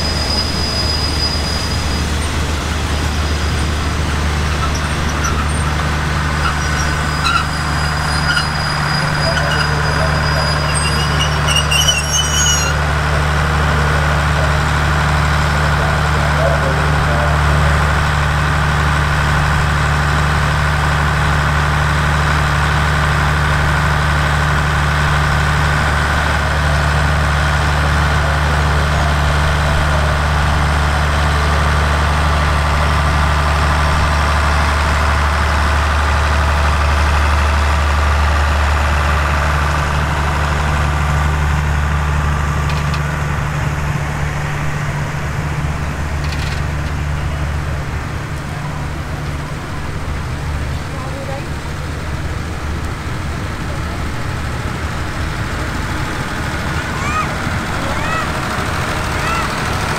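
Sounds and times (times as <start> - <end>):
brief high squeals: 0.0 - 2.2, 6.5 - 12.8
train diesel engines idling: 0.0 - 59.9.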